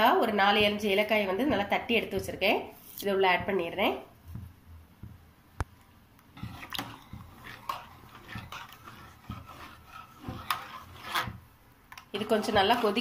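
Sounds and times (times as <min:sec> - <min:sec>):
spoon stirring liquid in pot: 0:00.4 - 0:13.0
spoon scraping and tapping metal: 0:06.4 - 0:11.4.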